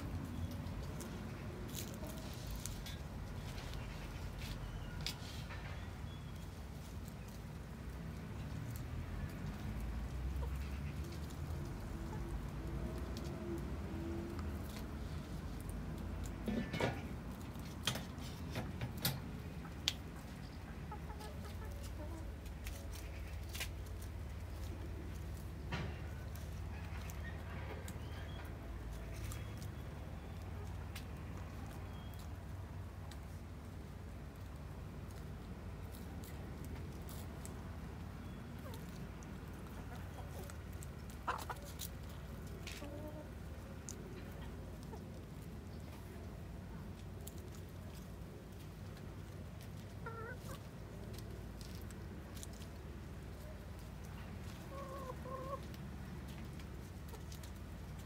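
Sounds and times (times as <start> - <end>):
hens clucking softly: 19.5 - 25.4, 38.2 - 58.0.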